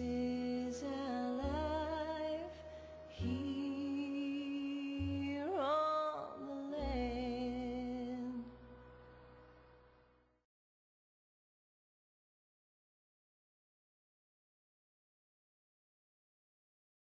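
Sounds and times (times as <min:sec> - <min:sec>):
person singing with vibrato: 0:00.0 - 0:08.6
low sustained backing music: 0:00.0 - 0:10.4.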